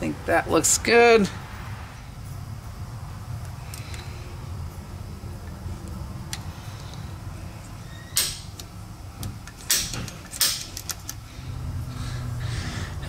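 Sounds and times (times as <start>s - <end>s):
low steady hum: 0.0s - 13.0s
metal clicks and scrapes: 9.5s - 11.2s.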